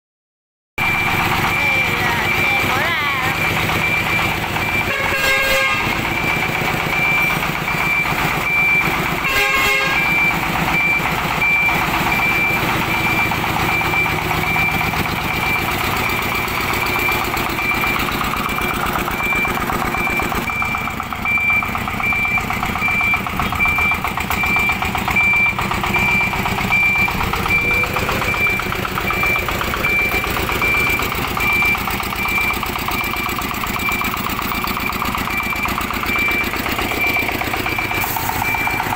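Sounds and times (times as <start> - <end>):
electronic beeper beeping: 0.8 - 38.9
vehicle engine running: 0.8 - 38.9
horn blasts: 4.7 - 6.2, 9.2 - 10.4.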